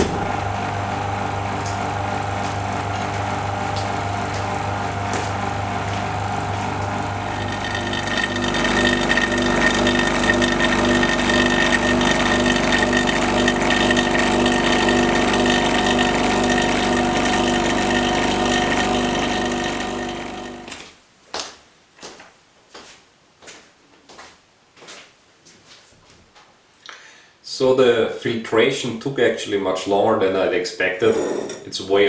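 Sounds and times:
vacuum pump humming: 0.0s - 20.8s.

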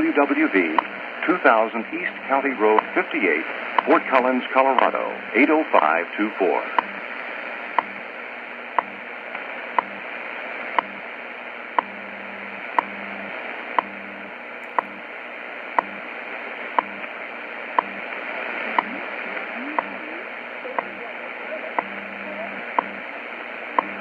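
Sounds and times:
shortwave static hiss: 0.0s - 24.0s
sharp time signal ticks: 3.8s - 4.0s, 4.7s - 4.9s, 8.8s - 9.0s, 11.8s - 12.0s, 12.7s - 12.9s, 14.6s - 15.0s, 15.8s - 16.0s, 16.8s - 17.0s, 17.8s - 18.0s, 21.8s - 22.0s, 22.7s - 23.0s, 23.8s - 24.0s.

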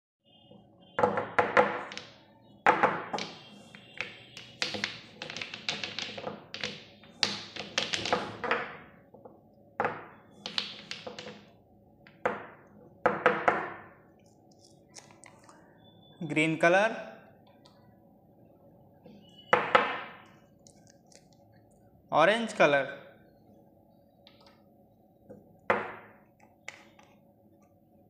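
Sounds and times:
plastic jars clattering on table: 2.7s - 8.9s.

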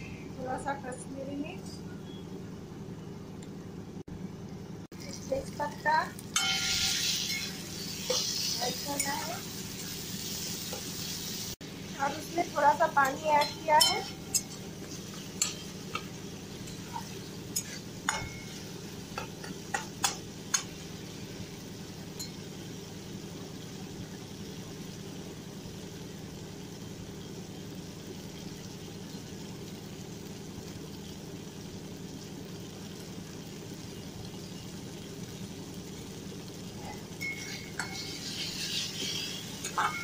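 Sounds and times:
paste sizzling in oil: 5.0s - 30.8s, 31.8s - 40.0s
metal spatula scraping pan: 6.4s - 9.3s, 13.0s - 16.1s, 16.7s - 18.6s, 37.2s - 40.0s.

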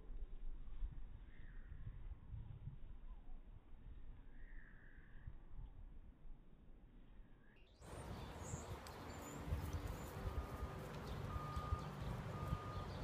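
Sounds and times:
faint bird chirps: 1.2s - 2.0s, 4.2s - 5.7s, 7.4s - 13.0s.

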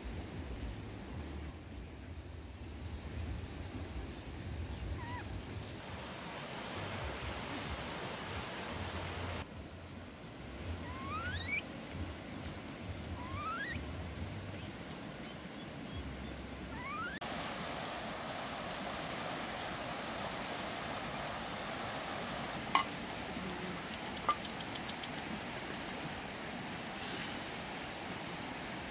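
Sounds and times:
baby monkeys squeaking: 5.0s - 5.3s, 10.9s - 11.6s, 13.2s - 13.8s, 16.8s - 17.2s.

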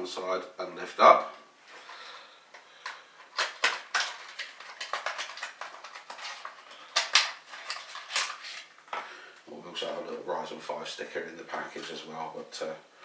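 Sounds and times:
plastic tray clicking and crackling: 2.8s - 8.4s.

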